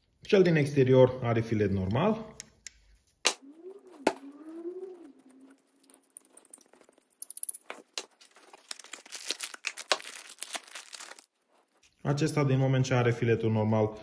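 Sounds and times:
wavering tone: 0:03.4 - 0:07.5
plastic bag crinkling: 0:05.3 - 0:12.0
metal parts clicking on bubble wrap: 0:05.8 - 0:11.3.

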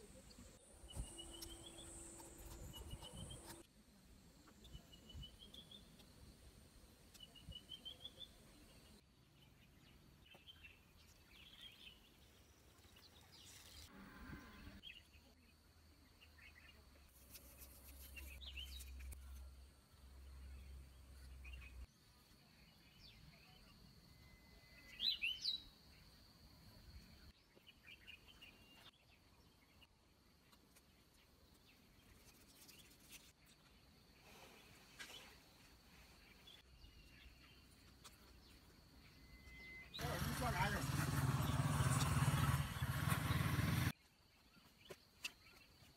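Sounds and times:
faint bird chirps: 0:00.0 - 0:03.6, 0:20.2 - 0:40.7.

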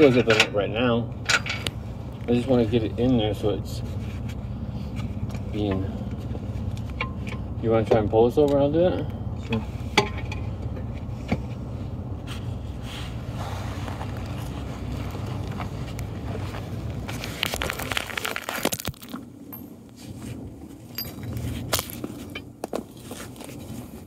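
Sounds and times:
steady low hum: 0:00.0 - 0:24.0
tools being handled: 0:19.0 - 0:23.8.

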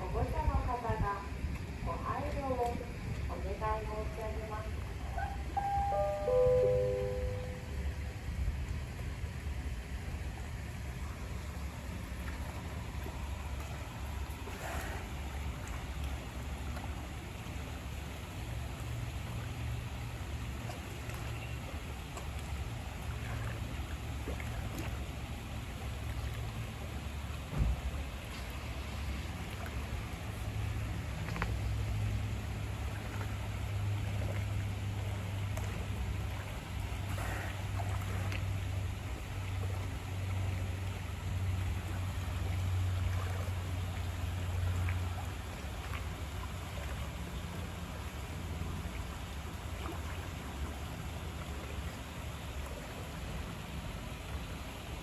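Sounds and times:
low hum: 0:00.0 - 0:14.6
faint moving water: 0:00.0 - 0:55.0
steady low rumble: 0:00.0 - 0:55.0.

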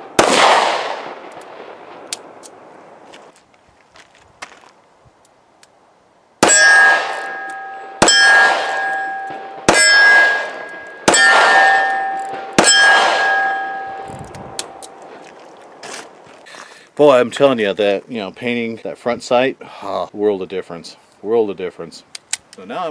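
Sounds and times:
steel target plate ringing: 0:06.4 - 0:14.9.

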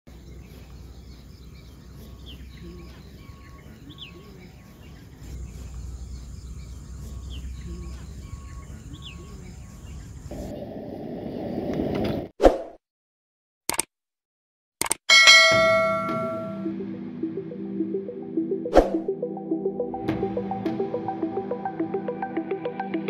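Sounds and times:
birds chirping: 0:00.1 - 0:10.7, 0:15.1 - 0:16.6
low hum: 0:05.2 - 0:08.5.

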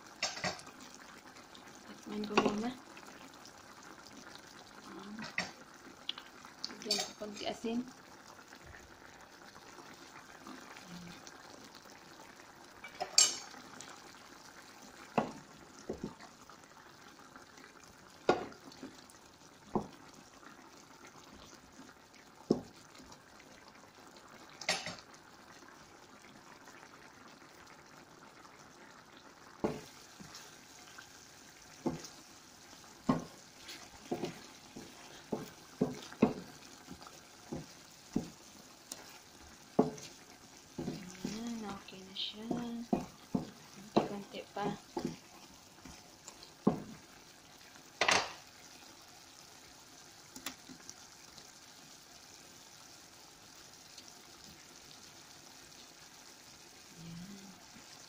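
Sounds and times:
curry bubbling in a pan: 0:00.0 - 0:58.0
wooden spatula stirring: 0:29.6 - 0:47.1.

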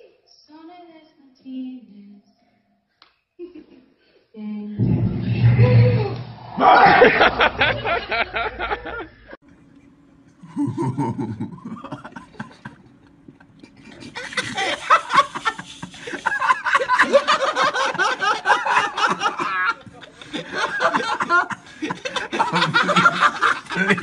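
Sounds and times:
people laughing: 0:06.6 - 0:09.4, 0:10.4 - 0:24.0.

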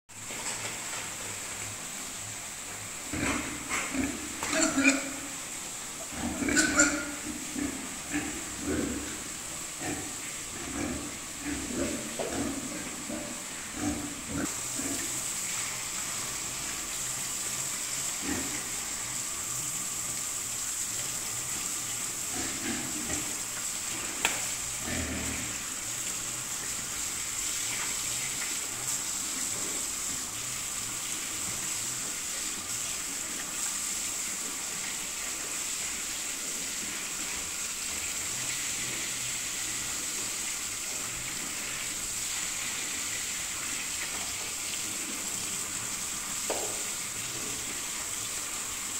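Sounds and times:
water spraying from a hose: 0:00.1 - 0:48.9
low pig grunts: 0:03.1 - 0:05.3, 0:06.1 - 0:15.1, 0:24.8 - 0:25.6.

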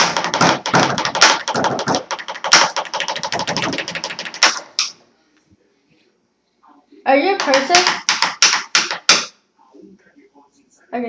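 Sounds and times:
markers drumming on wooden table: 0:00.0 - 0:04.9, 0:07.4 - 0:09.3.

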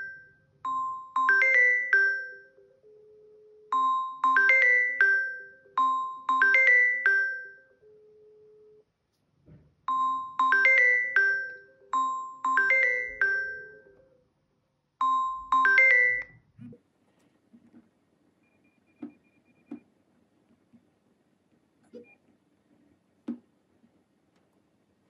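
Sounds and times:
chiming phone ringtone: 0:00.0 - 0:08.8, 0:09.9 - 0:14.2, 0:15.0 - 0:16.4.

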